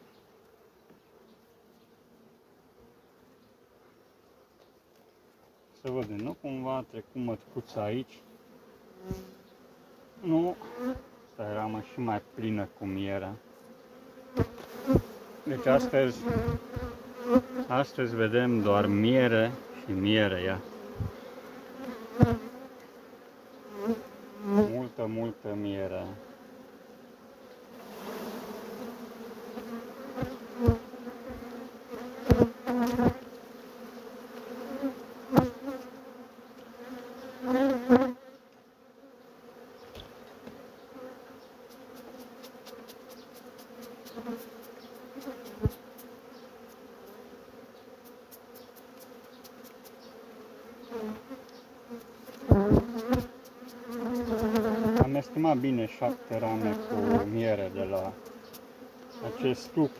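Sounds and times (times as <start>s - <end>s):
honey bees buzzing: 0.0s - 59.9s.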